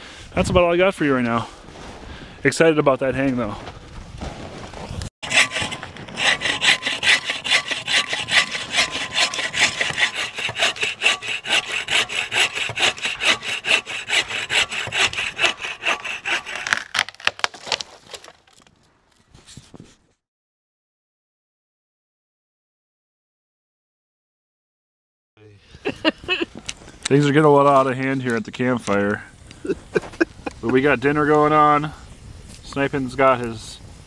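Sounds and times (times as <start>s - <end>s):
saw cutting through wood: 5.2s - 18.3s.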